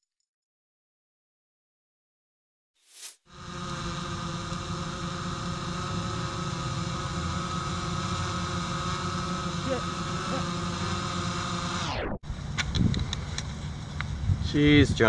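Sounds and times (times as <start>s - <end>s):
machine hum with held tones: 3.3s - 14.3s.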